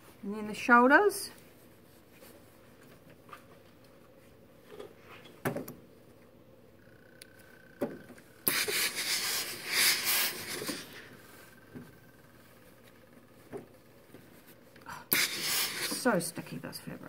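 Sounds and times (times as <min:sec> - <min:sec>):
steam iron hissing: 0:08.4 - 0:11.5, 0:14.9 - 0:16.3.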